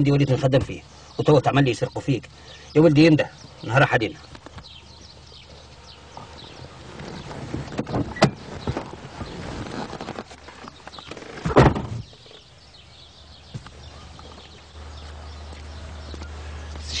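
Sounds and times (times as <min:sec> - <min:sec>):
car door shutting: 0:07.0 - 0:09.0, 0:11.1 - 0:12.2.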